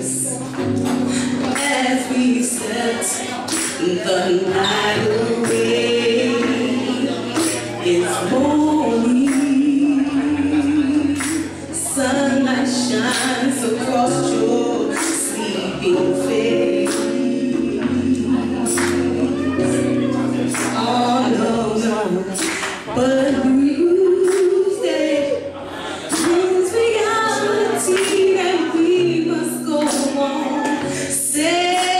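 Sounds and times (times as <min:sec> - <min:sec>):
electric keyboard chords: 0:00.0 - 0:31.9
woman singing soul ballad: 0:00.0 - 0:31.9.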